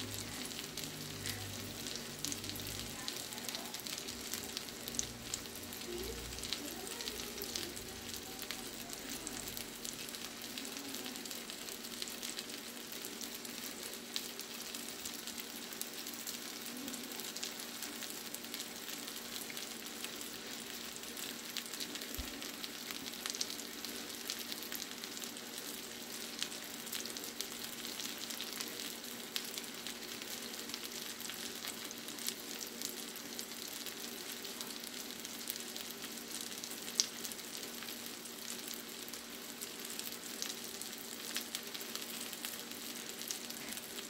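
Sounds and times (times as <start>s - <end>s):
fish frying in a pan: 0.0s - 44.0s.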